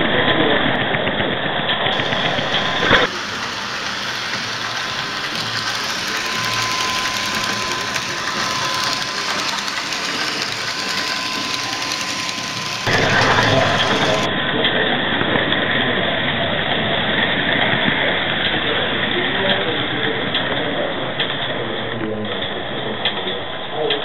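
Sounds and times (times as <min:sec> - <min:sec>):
rumble of wheels and motor: 0:00.0 - 0:24.0
model train running with whine: 0:00.3 - 0:14.9.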